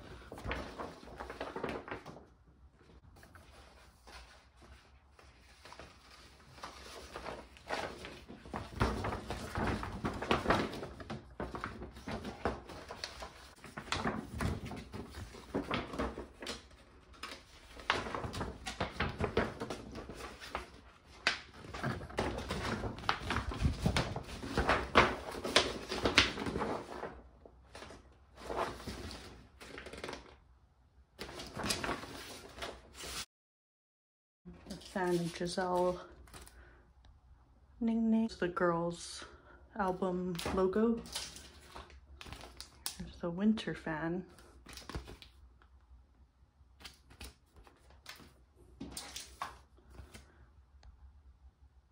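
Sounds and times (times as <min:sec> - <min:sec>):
hands handling packaging: 0:00.3 - 0:02.2.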